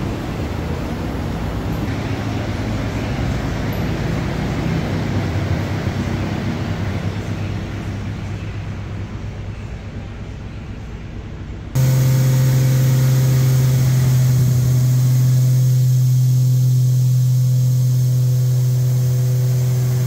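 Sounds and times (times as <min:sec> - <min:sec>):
road noise: 0:00.0 - 0:10.6, 0:11.8 - 0:20.0
car engine running: 0:11.8 - 0:20.0.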